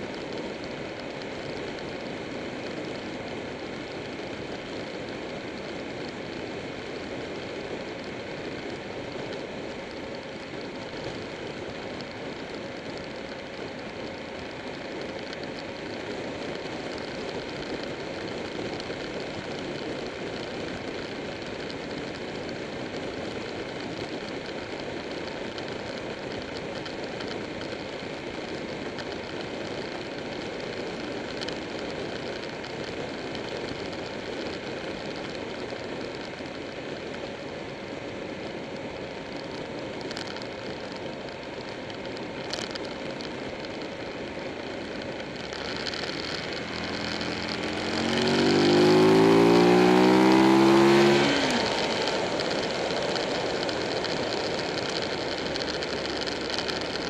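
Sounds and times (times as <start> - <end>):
wind and road noise: 0.0 - 57.0
motorcycle engine cruising: 38.7 - 57.0.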